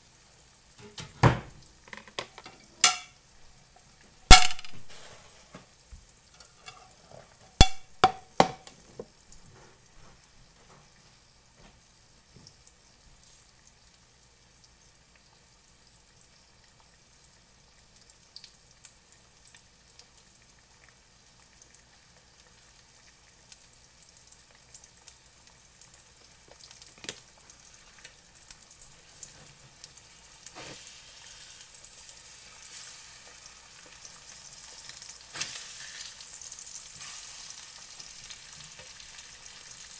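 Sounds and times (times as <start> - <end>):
eggs sizzling in a fry pan: 0.0 - 39.9
utensil clinking against pan: 2.2 - 3.1.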